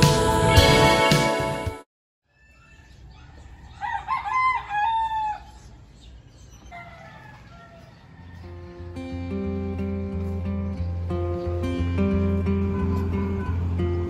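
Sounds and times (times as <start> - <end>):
music: 0.0 - 1.9, 8.5 - 14.0
rooster crowing: 2.4 - 5.6, 6.6 - 9.0.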